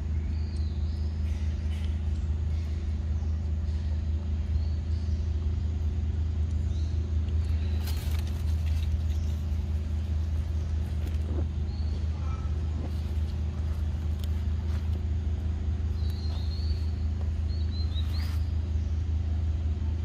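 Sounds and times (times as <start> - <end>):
low engine hum: 0.0 - 20.0.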